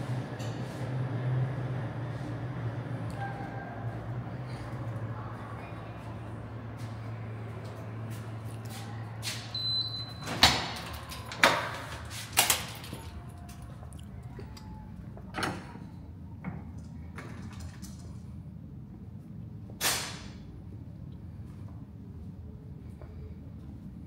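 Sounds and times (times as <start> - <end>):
high beep: 9.5 - 10.2.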